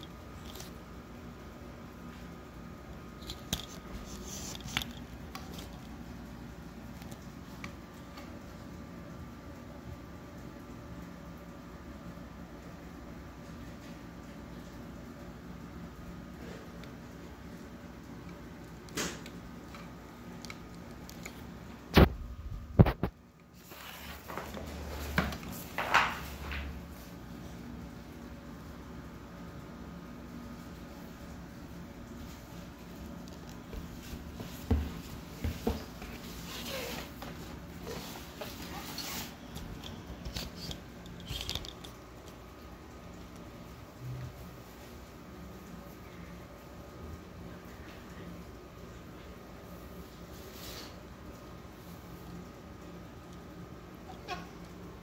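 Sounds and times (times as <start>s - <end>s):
faint steady hum: 0.0s - 55.0s
handling clicks and rustles: 3.0s - 8.2s
cardboard board rustling and scraping: 23.6s - 26.3s, 34.0s - 40.7s.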